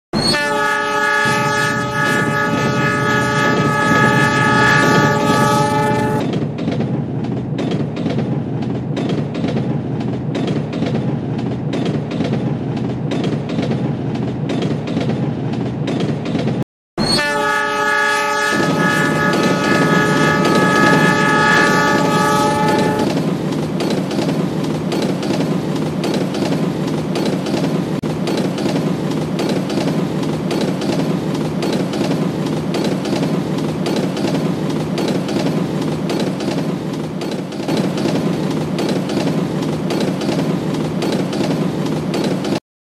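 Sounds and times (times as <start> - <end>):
train air horn chord: 0.2 - 6.2, 17.0 - 23.1
railway wagons rumbling past: 0.2 - 42.6.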